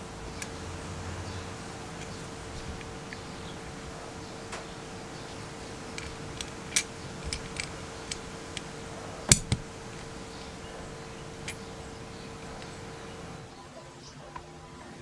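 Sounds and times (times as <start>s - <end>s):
small metal clicks and taps: 6.0s - 8.7s.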